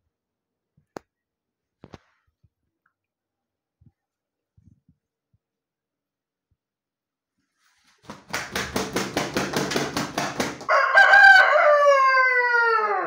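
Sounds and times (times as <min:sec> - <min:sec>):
rooster wings beating: 0:07.7 - 0:11.1
rooster crowing: 0:10.6 - 0:13.0.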